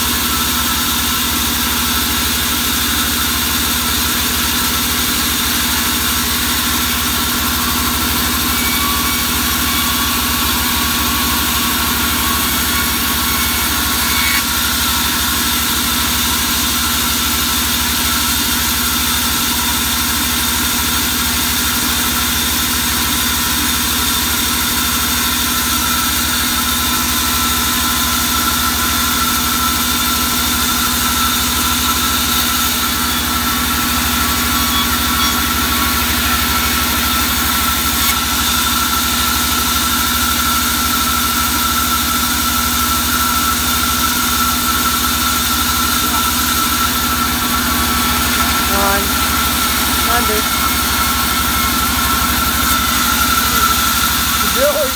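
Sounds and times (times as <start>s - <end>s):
band saw running: 0.0s - 54.9s.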